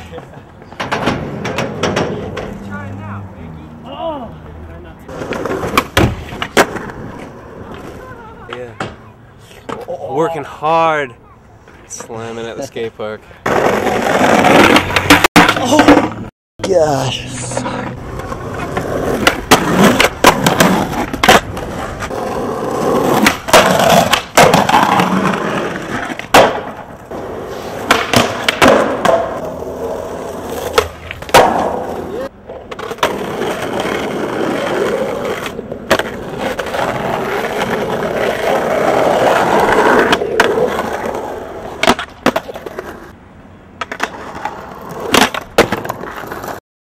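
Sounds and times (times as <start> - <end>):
skateboard wheels rolling on concrete: 0.0 - 46.6
skateboard popping and landing: 0.7 - 2.6, 5.1 - 10.1, 13.4 - 16.8, 17.6 - 43.2, 43.8 - 46.6.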